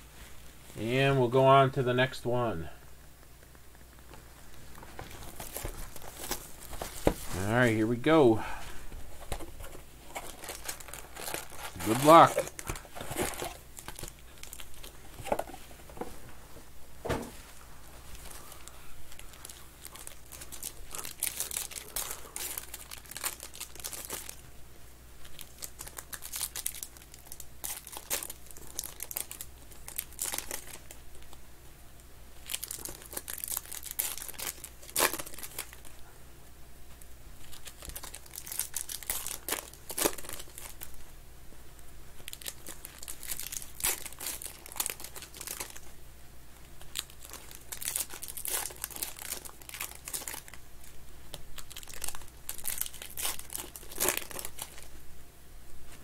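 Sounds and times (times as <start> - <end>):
foil wrappers crinkling and tearing: 4.7 - 15.6, 18.1 - 24.4, 25.2 - 31.4, 32.4 - 36.0, 37.4 - 41.0, 42.2 - 45.9, 46.7 - 54.9.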